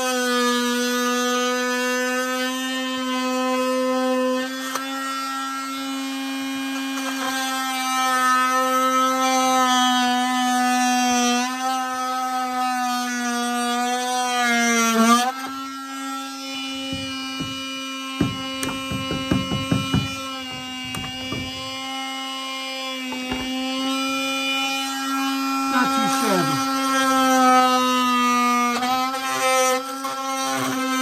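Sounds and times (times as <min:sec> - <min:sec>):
multi-tool cutting pipe: 0:00.0 - 0:31.0
knocks: 0:16.6 - 0:21.9, 0:23.1 - 0:23.8.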